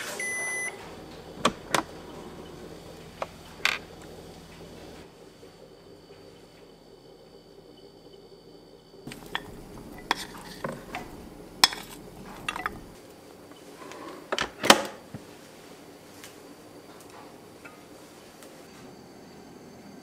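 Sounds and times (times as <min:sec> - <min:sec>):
utensil clinking on metal pot: 0:09.1 - 0:12.9.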